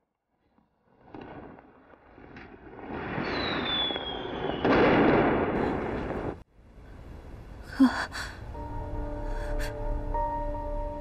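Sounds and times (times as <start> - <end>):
fireworks crackling and bursting: 0.5 - 6.4
firework whistle: 3.2 - 4.8
soft music: 7.6 - 11.0
woman gasping: 7.7 - 8.5, 9.2 - 9.8.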